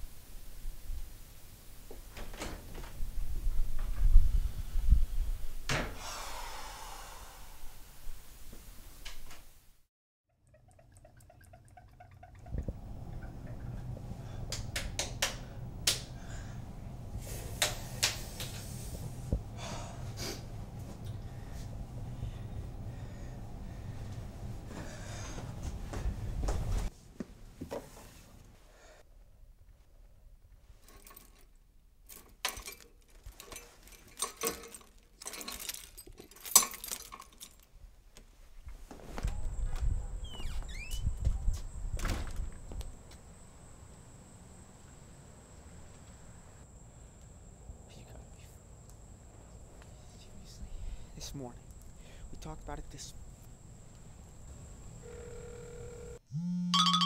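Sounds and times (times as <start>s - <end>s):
steady low hum: 11.0s - 26.9s
low rumble: 12.5s - 17.5s
keys jingling in door lock: 32.1s - 37.7s.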